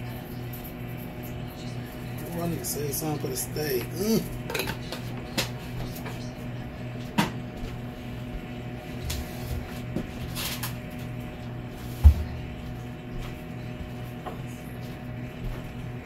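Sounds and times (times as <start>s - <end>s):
steady low hum: 0.0s - 16.0s
kitchen items clattering: 3.8s - 6.2s.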